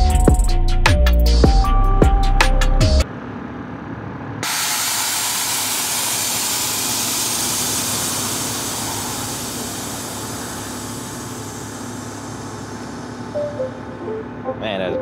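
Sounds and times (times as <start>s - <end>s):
air suspension venting hiss: 4.4s - 13.9s.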